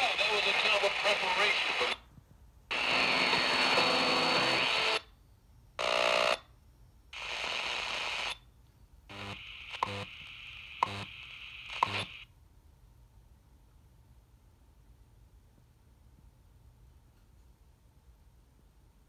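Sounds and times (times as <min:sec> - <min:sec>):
radio static: 0:00.0 - 0:02.0, 0:02.7 - 0:05.0, 0:07.2 - 0:08.3, 0:09.1 - 0:12.2
radio station audio: 0:00.0 - 0:02.1, 0:02.7 - 0:05.0, 0:09.1 - 0:12.2.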